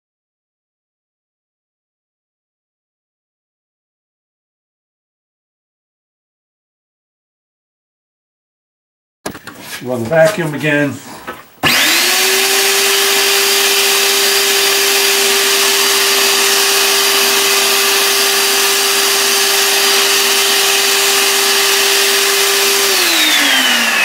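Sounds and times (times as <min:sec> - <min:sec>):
vacuum cleaner motor whine: 0:11.6 - 0:24.0.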